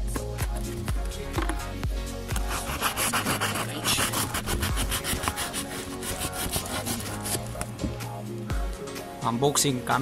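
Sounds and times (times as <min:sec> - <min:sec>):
cardboard box scraping: 0:02.4 - 0:07.7.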